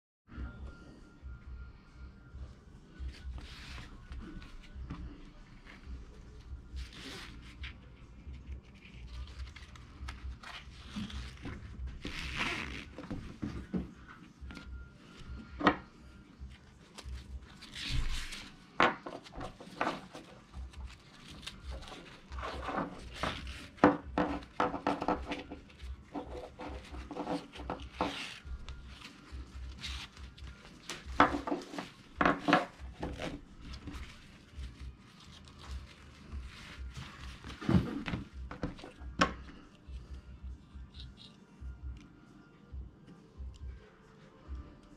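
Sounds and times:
nylon strap rustling and sliding: 0:06.8 - 0:13.7, 0:19.2 - 0:39.0.

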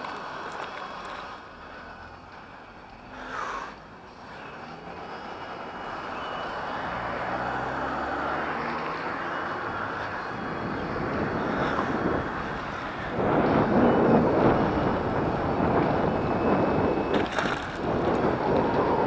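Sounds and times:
bicycle tyre rumble: 0:05.1 - 0:19.0
wind rushing: 0:09.7 - 0:19.0.

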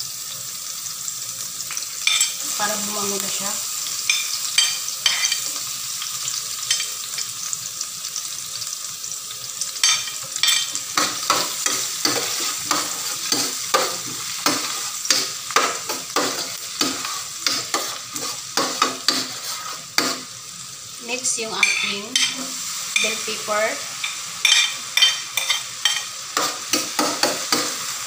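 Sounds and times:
onions sizzling in a frying pan: 0:00.0 - 0:28.0
spatula scraping a pan: 0:09.8 - 0:20.3, 0:24.0 - 0:27.9.

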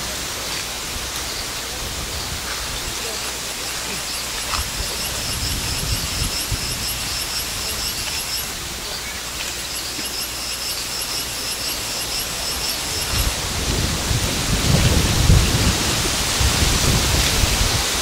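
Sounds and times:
noisy hiss: 0:00.0 - 0:18.0
high-pitched pulsing call: 0:03.0 - 0:13.4.

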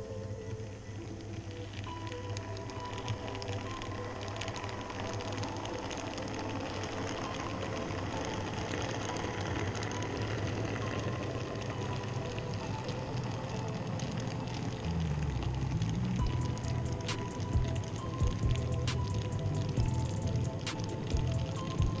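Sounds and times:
wheels clicking on rails: 0:00.0 - 0:22.0.

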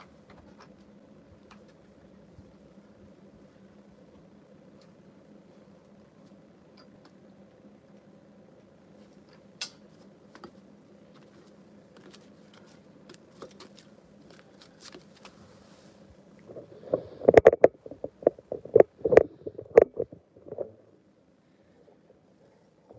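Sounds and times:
faint background hum: 0:00.0 - 0:22.9
phone handling knocks and rubbing: 0:16.5 - 0:20.8.

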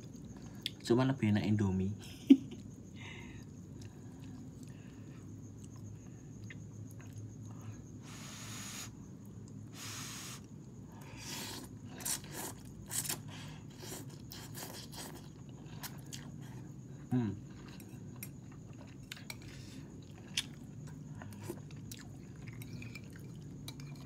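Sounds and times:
chewing and sucking sounds: 0:08.1 - 0:16.7, 0:17.5 - 0:24.0.

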